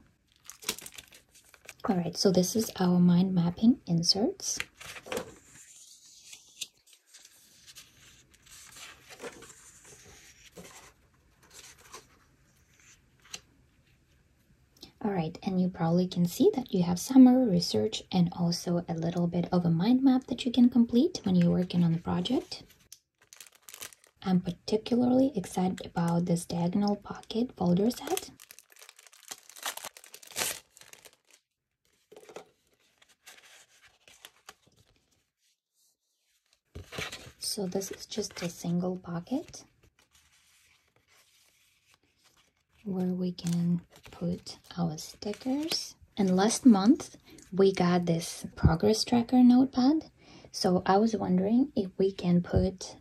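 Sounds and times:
plastic folders crinkling: 0:00.3 - 0:01.9, 0:23.2 - 0:24.2, 0:27.8 - 0:35.2
paper sheets rustling: 0:04.6 - 0:13.4, 0:27.8 - 0:35.2, 0:36.3 - 0:38.8, 0:39.4 - 0:44.2.

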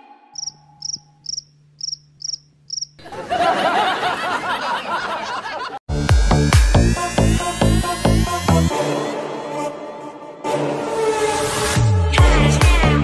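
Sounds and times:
cricket chirps: 0:00.4 - 0:03.0
man laughing hard: 0:03.0 - 0:05.8.

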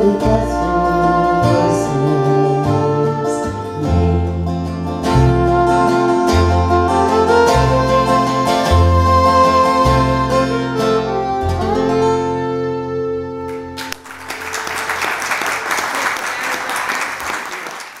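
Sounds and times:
acoustic string band playing: 0:00.0 - 0:14.0
audience applauding: 0:13.5 - 0:18.0.

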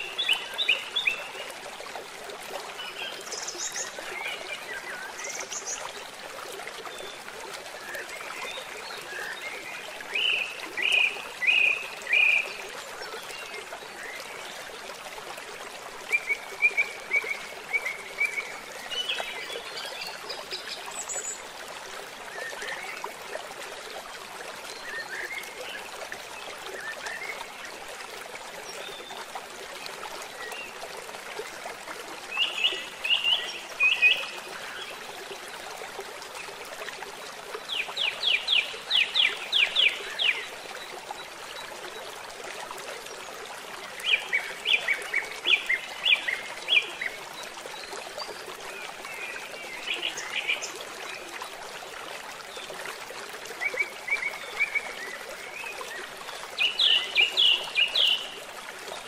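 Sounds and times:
stream running over rocks: 0:00.0 - 0:59.0.

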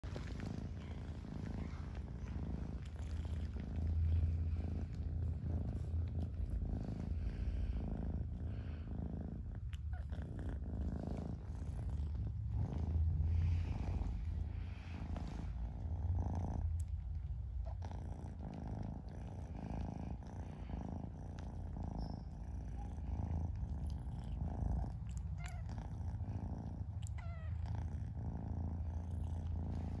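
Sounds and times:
kitten purring: 0:00.0 - 0:30.0.

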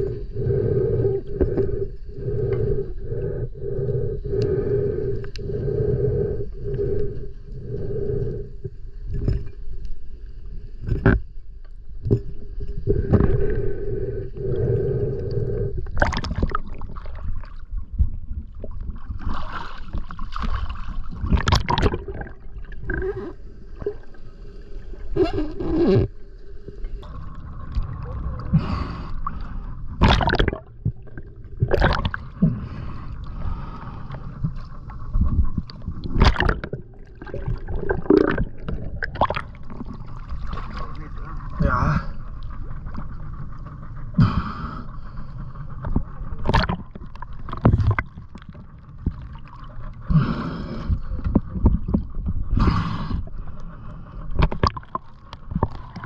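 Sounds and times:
muffled underwater water movement: 0:00.0 - 0:56.0
knocks and clicks underwater: 0:10.8 - 0:13.4, 0:15.8 - 0:17.2, 0:21.2 - 0:24.0, 0:30.0 - 0:32.2, 0:34.4 - 0:41.0, 0:45.8 - 0:49.8, 0:50.9 - 0:52.6, 0:54.3 - 0:56.0.

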